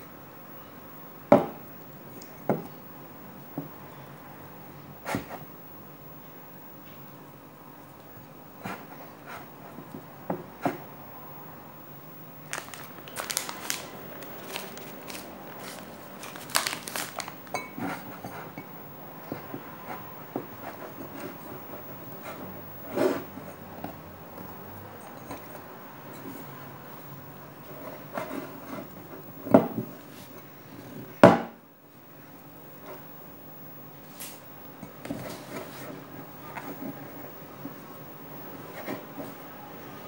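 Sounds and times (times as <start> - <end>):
hands kneading sticky dough: 12.4 - 31.2.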